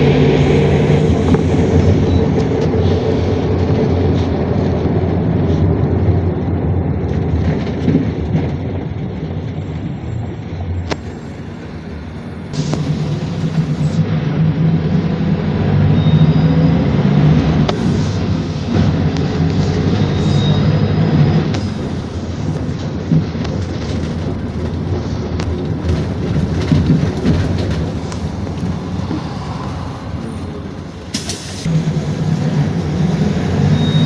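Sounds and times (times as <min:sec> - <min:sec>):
bus engine drone: 0:00.0 - 0:34.0
road noise: 0:00.0 - 0:34.0
brief air hiss: 0:31.1 - 0:31.7.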